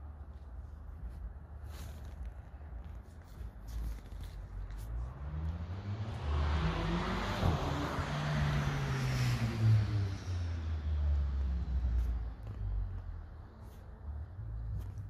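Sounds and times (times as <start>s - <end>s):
vehicle passing by: 4.7s - 14.8s.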